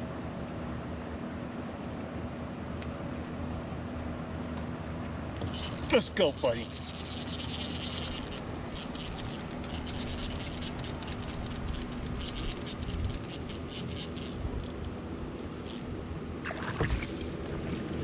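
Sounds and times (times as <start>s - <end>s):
fishing reel ticking: 5.4s - 15.9s.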